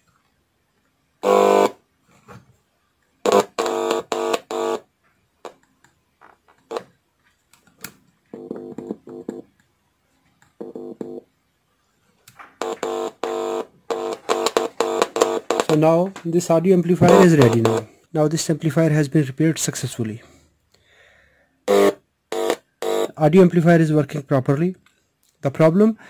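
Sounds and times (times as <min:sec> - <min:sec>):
speaker buzzing: 0:01.2 - 0:01.8, 0:03.2 - 0:05.6, 0:06.7 - 0:06.9, 0:08.3 - 0:09.4, 0:12.6 - 0:15.9, 0:17.0 - 0:17.9, 0:21.7 - 0:23.2.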